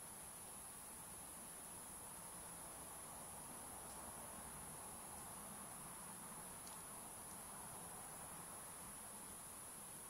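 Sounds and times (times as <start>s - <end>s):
faint hiss: 0.0s - 10.0s
tiny faint clicks: 3.8s - 4.1s, 5.0s - 5.4s, 6.1s - 7.6s.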